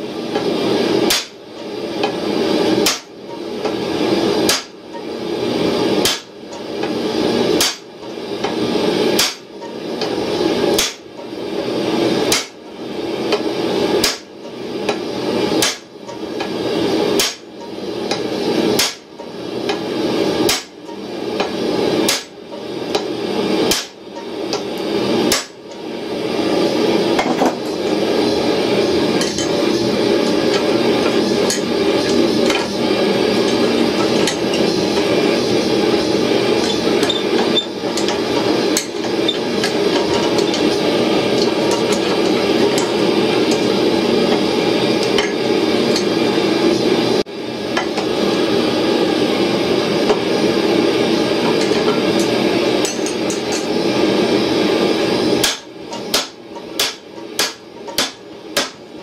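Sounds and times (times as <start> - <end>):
hammer striking steel on anvil: 9.2 - 9.5, 17.2 - 18.2, 55.4 - 58.8
forge roaring rush: 25.8 - 55.4.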